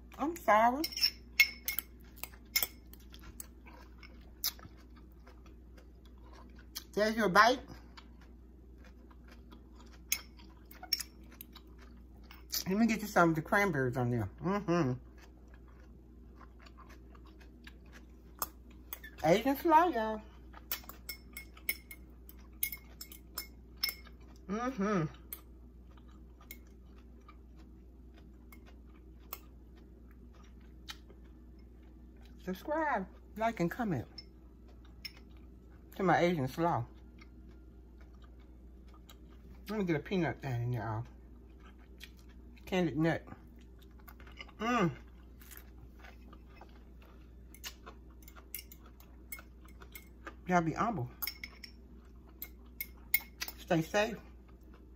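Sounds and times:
low steady hum: 0:00.0 - 0:54.9
chewing crunchy slaw: 0:01.8 - 0:07.0, 0:07.6 - 0:12.6, 0:14.9 - 0:19.2, 0:20.2 - 0:32.4, 0:36.8 - 0:39.7, 0:41.0 - 0:42.7, 0:43.3 - 0:50.5.

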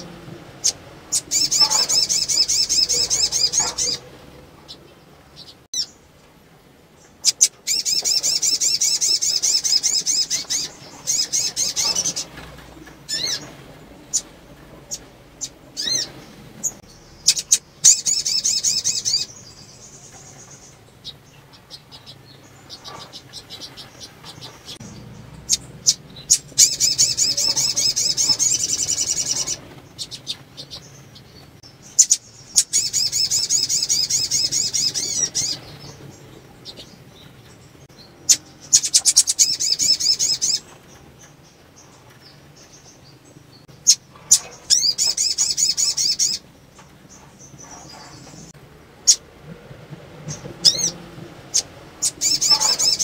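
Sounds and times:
bird twittering song: 0:00.0 - 0:06.1, 0:06.9 - 0:49.2, 0:50.3 - 0:53.0
sharp bird chips: 0:38.3 - 0:40.6.

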